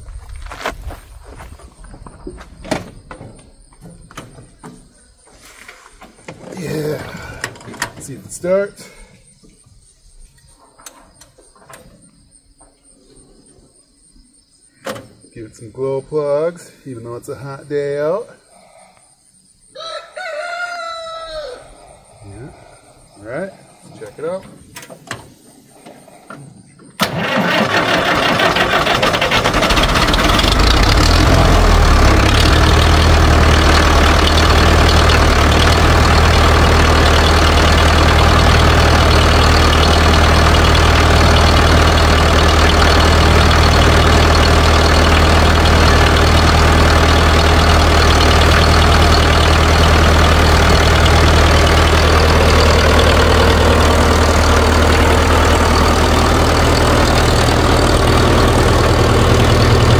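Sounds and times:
diesel engine idling: 27.0s - 59.9s
starter cranking: 27.0s - 59.9s.

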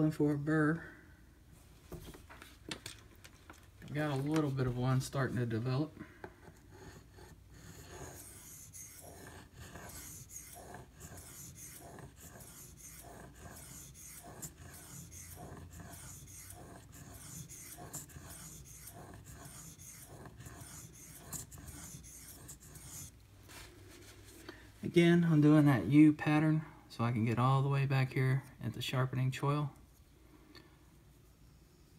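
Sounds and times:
knife scraping on whetstone: 6.7s - 23.2s.

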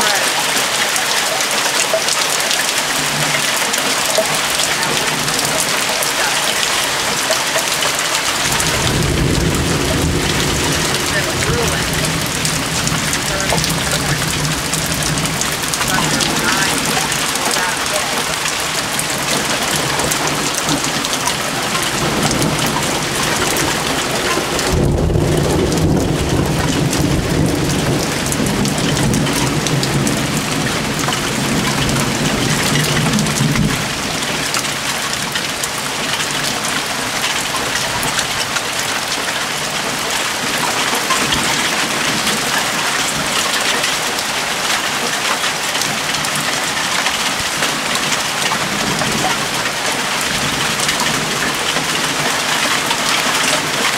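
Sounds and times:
steady rain falling: 0.0s - 53.9s
thunder rumbling: 2.8s - 44.7s.

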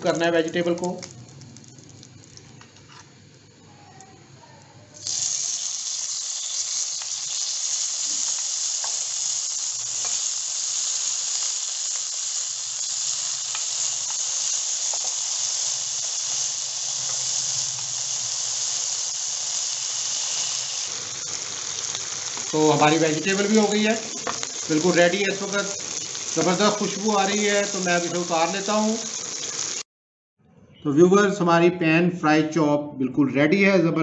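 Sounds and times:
vegetables sizzling in oil: 5.0s - 29.9s.

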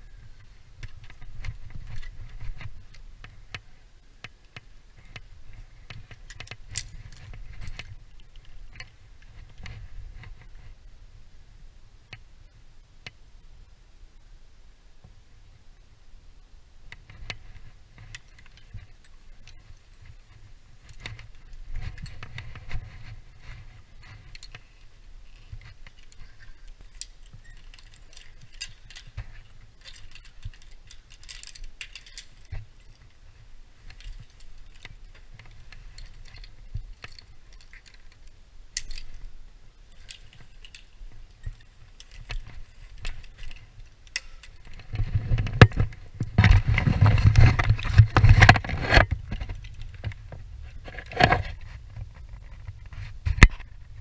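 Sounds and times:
rattling and handling noise: 0.0s - 10.8s, 16.9s - 54.0s
metal climbing hardware jangling: 24.0s - 33.2s, 33.8s - 39.3s, 39.9s - 45.9s.

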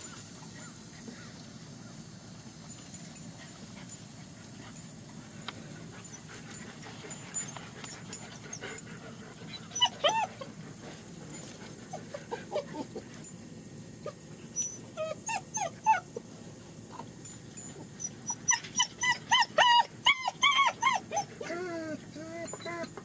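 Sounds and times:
puppies yelping and whimpering: 6.0s - 10.6s, 11.4s - 13.2s, 14.0s - 16.3s, 17.8s - 23.0s
puppy squeaks: 9.5s - 10.4s, 18.0s - 21.6s.

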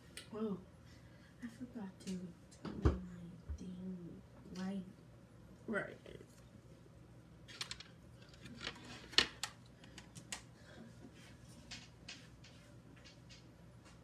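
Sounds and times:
small objects clicking and rustling: 7.5s - 10.4s.

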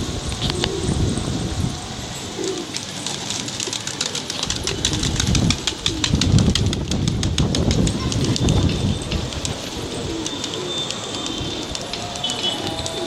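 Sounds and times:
pigeons cooing: 0.0s - 13.0s
wings flapping: 2.3s - 13.0s
sharp clicks: 2.7s - 13.0s.

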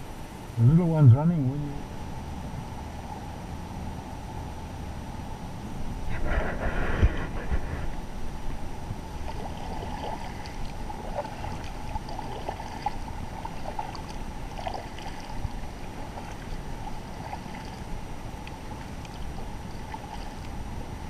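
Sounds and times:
kayak paddle splashing water: 9.2s - 21.0s.

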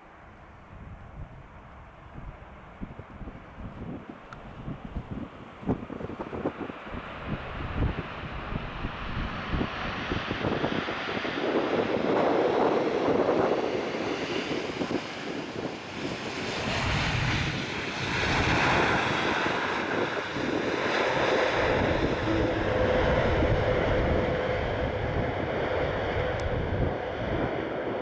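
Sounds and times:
jet engines rumbling: 0.0s - 28.0s
steady whine: 16.6s - 28.0s.

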